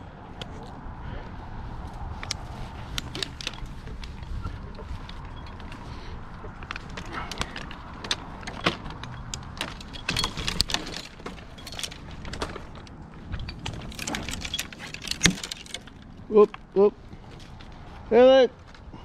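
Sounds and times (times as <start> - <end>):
light metallic clinks: 2.2 - 16.2.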